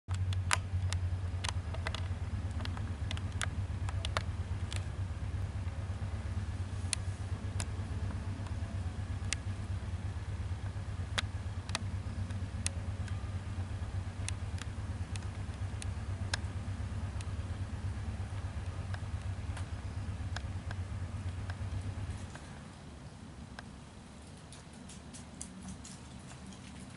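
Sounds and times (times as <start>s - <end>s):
sharp clicks: 0.1s - 5.0s, 10.6s - 13.3s, 14.2s - 16.5s.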